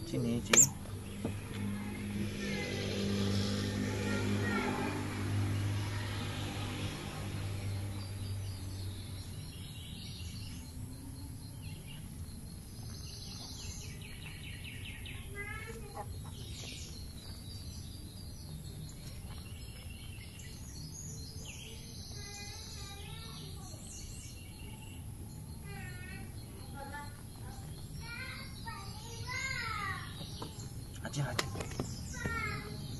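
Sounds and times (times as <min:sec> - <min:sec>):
low hum: 0:00.0 - 0:09.8
birds singing and chirping: 0:00.0 - 0:32.9.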